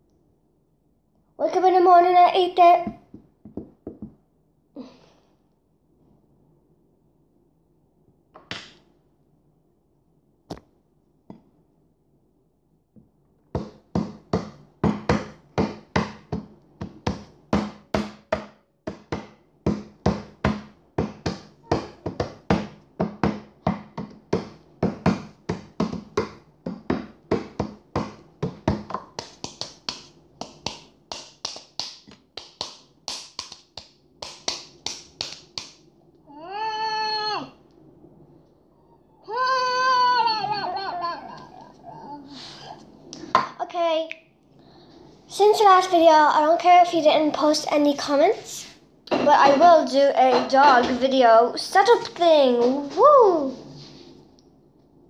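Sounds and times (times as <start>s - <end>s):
hands tapping on hard surface: 2.8s - 4.2s, 13.0s - 35.8s.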